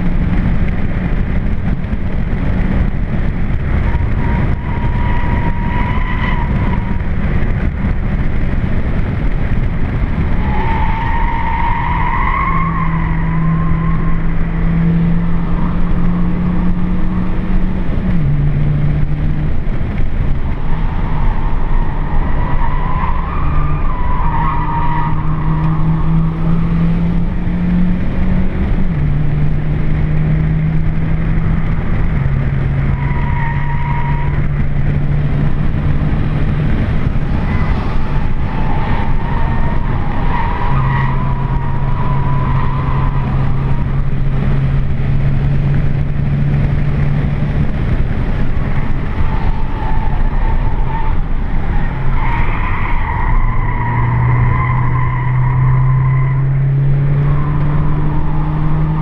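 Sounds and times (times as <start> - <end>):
car engine working hard: 0.0 - 59.0.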